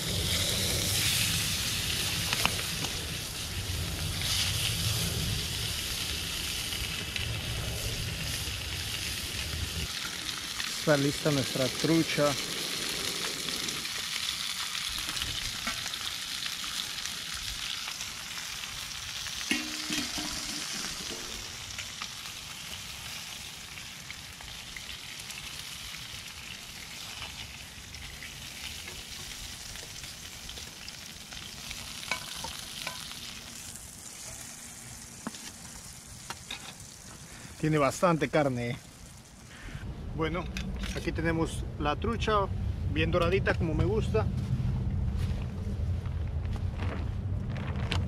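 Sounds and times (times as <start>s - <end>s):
fish sizzling in a pan: 0.0s - 39.6s.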